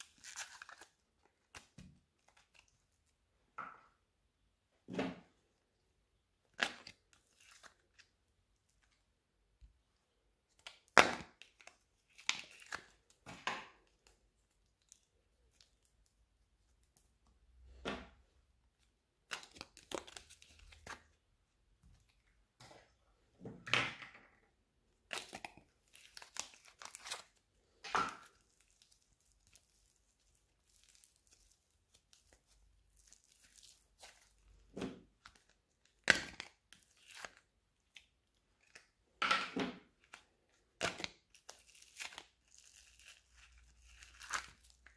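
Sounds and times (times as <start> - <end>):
plastic tubs crackling and snapping: 19.1 - 21.2, 24.9 - 44.9.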